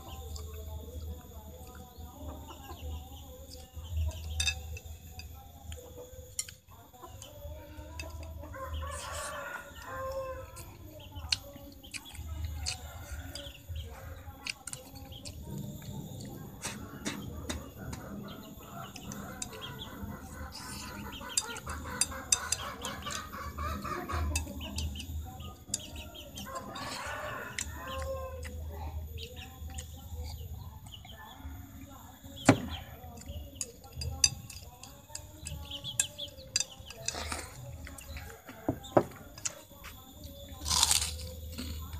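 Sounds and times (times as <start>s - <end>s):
chickens clucking: 0.0s - 41.9s
rooster crowing: 8.5s - 10.8s, 26.2s - 28.6s.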